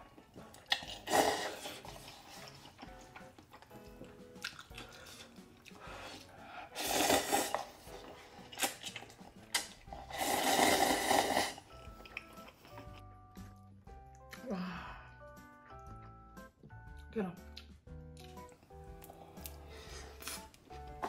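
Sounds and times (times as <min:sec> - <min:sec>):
faint background music: 0:00.0 - 0:21.0
person slurping noodles: 0:00.7 - 0:02.5, 0:06.2 - 0:11.8
small clicks and mouth sounds: 0:08.4 - 0:09.9, 0:11.7 - 0:14.5, 0:17.5 - 0:19.6.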